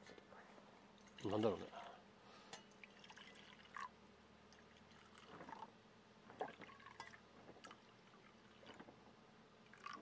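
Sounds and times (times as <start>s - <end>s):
coffee pouring into a mug: 2.7s - 5.7s, 6.3s - 9.0s, 9.7s - 10.0s.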